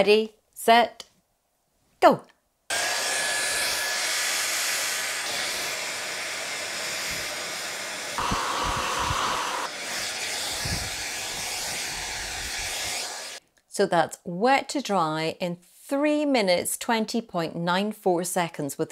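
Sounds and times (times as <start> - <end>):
hairdryer blowing: 2.7 - 13.4.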